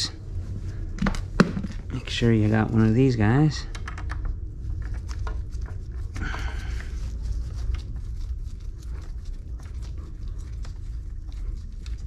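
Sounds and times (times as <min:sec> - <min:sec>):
steady low hum: 0:00.0 - 0:12.0
gloved hands rustling: 0:04.2 - 0:12.0.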